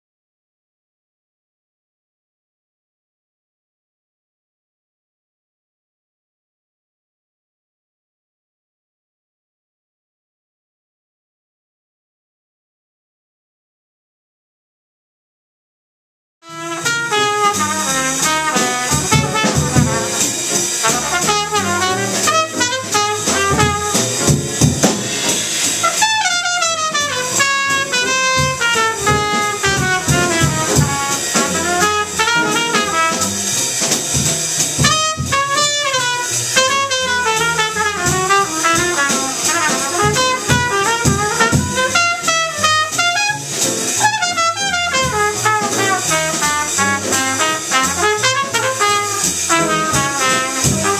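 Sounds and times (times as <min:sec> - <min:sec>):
trumpet lead line: 0:16.4 - 0:34.0, 0:34.8 - 0:50.9
jazz combo playing: 0:16.4 - 0:50.9.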